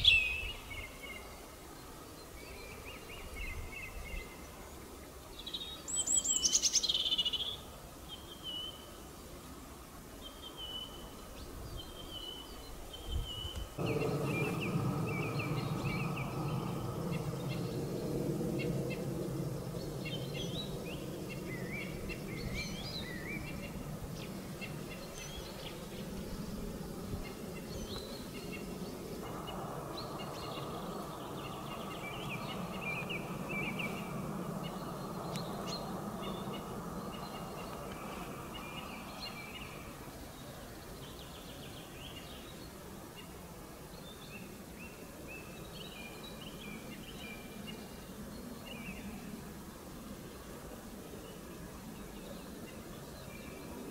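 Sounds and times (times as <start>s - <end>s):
robin singing: 0.0s - 1.4s, 5.4s - 8.9s, 10.2s - 42.8s
low background rumble: 13.8s - 41.2s.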